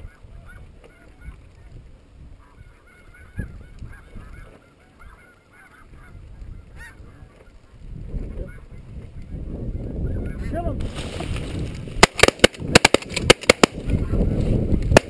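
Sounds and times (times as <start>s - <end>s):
geese honking: 0.0s - 10.7s.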